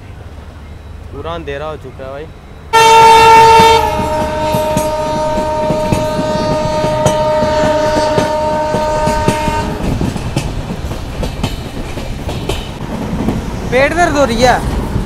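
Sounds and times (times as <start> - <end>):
train horn two-note blast: 2.7 - 9.8
train wheels clacking on rail joints: 3.4 - 15.0.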